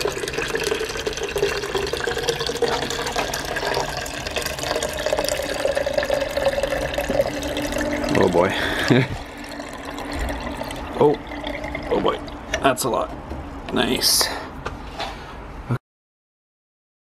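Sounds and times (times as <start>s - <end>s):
liquid pouring into a jar: 0.0s - 12.5s.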